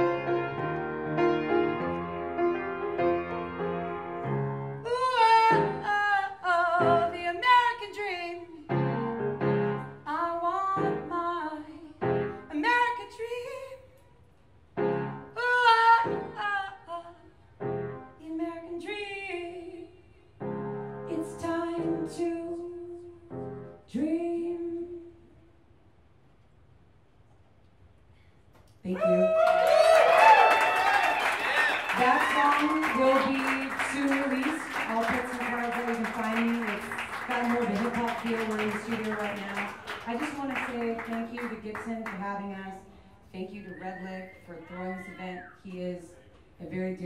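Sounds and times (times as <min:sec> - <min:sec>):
piano chords: 0:00.0 - 0:07.3, 0:08.7 - 0:12.6, 0:14.8 - 0:16.7, 0:17.6 - 0:18.7, 0:20.4 - 0:24.5
woman singing with vibrato: 0:04.8 - 0:08.6, 0:31.9 - 0:41.8.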